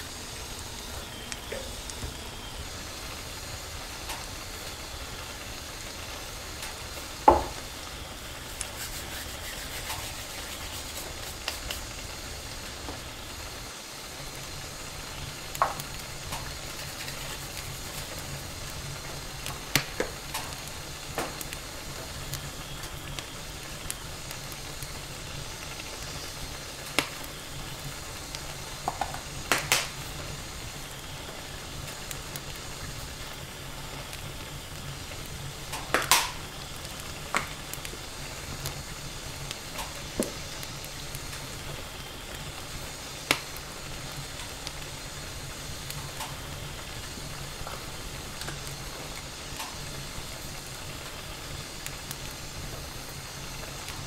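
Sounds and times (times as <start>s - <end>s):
food sizzling in a pan: 0.0s - 54.0s.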